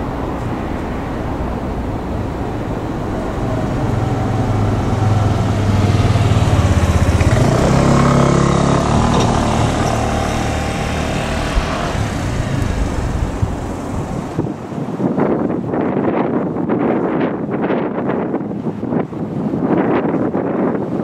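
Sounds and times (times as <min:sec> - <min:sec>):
vehicle engine passing by: 0:00.0 - 0:14.8.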